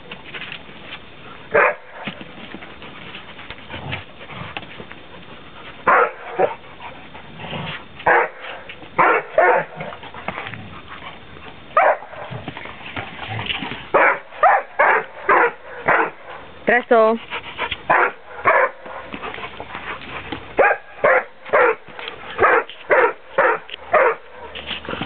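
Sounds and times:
dogs barking: 1.5s - 2.0s, 5.8s - 6.6s, 8.0s - 10.1s, 11.7s - 12.4s, 13.9s - 16.4s, 17.9s - 19.1s, 20.6s - 24.6s.

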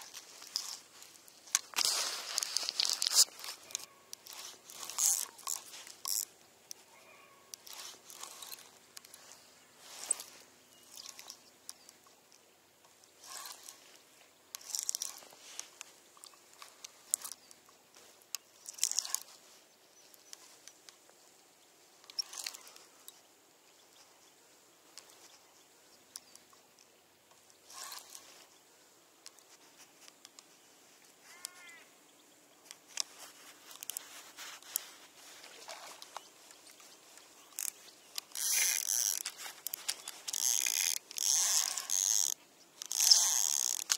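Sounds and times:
fishing reel ratcheting whir: 2.8s - 6.3s, 37.6s - 43.9s.

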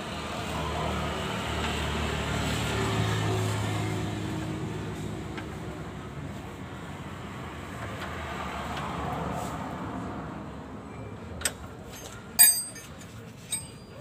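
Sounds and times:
metal clink of hand tool: 12.0s - 14.0s.

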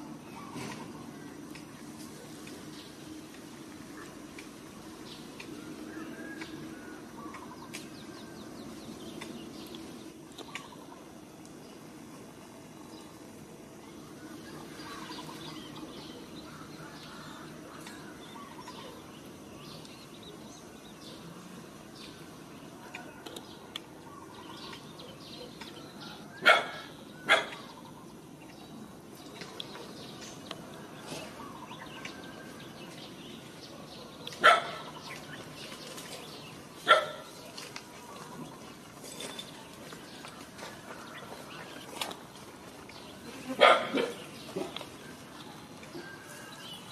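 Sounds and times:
birds chirping and trilling: 0.0s - 46.9s
outdoor background noise: 0.0s - 46.9s
bark-like animal call: 26.4s - 27.7s, 34.4s - 35.0s, 36.8s - 37.4s, 43.5s - 44.7s.

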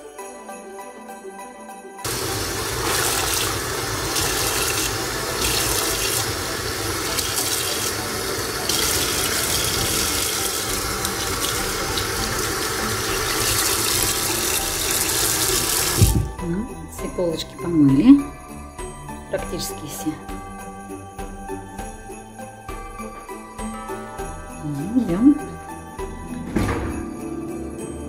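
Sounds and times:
tap running into steel sink: 2.1s - 16.4s.

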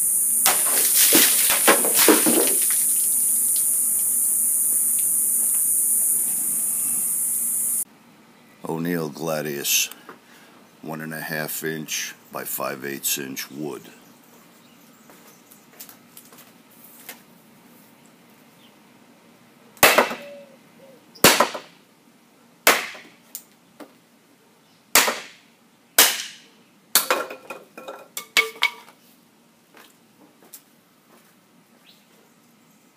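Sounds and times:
sword chopping wood cracks: 0.4s - 2.8s, 19.8s - 20.4s, 21.2s - 21.8s, 22.6s - 23.2s, 24.9s - 25.4s, 26.0s - 27.3s.

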